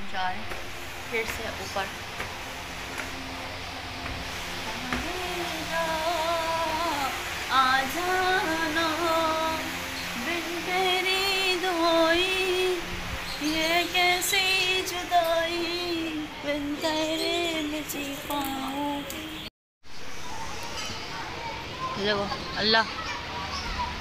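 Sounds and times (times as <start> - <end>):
woman singing: 4.6 - 19.5.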